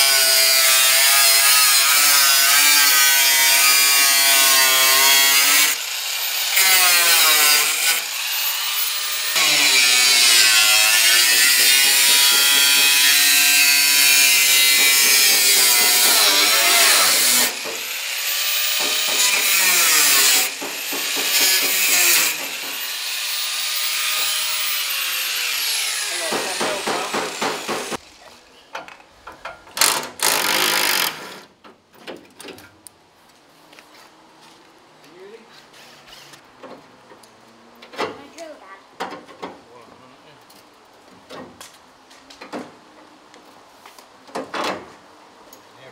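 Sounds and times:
angle grinder cutting steel: 0:00.0 - 0:28.0.

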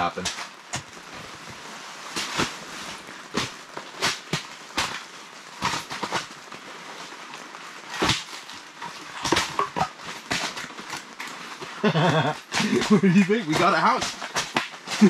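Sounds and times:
firewood pieces clunking: 0:07.8 - 0:15.0.

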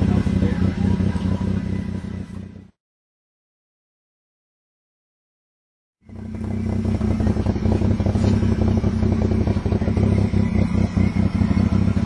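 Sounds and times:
truck engine under load: 0:06.0 - 0:12.0.

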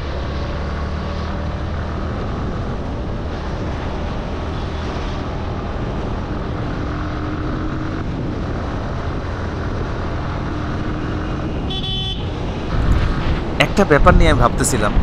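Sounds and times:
motorcycle engine cruising: 0:00.0 - 0:15.0
wind rush on microphone: 0:01.7 - 0:15.0.

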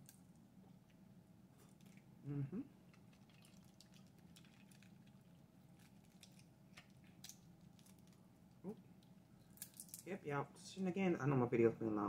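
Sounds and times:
low steady hum: 0:00.0 - 0:12.0
shellfish shell cracking: 0:02.9 - 0:10.1.

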